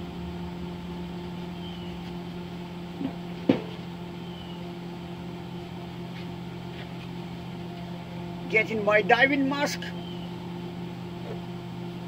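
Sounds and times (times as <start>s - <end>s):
cooling fan running: 0.0s - 12.0s
welder electrical hum: 0.0s - 12.0s.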